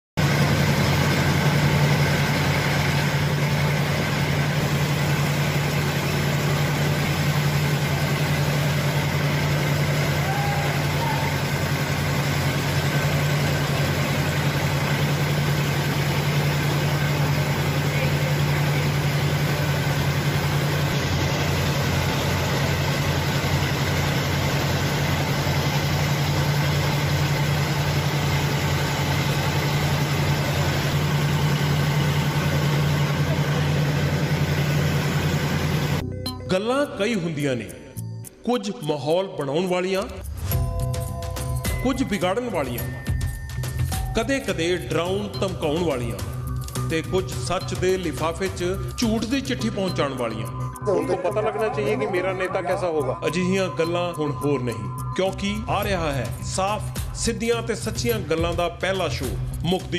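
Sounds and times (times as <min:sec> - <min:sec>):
motor humming: 0:00.2 - 0:36.0.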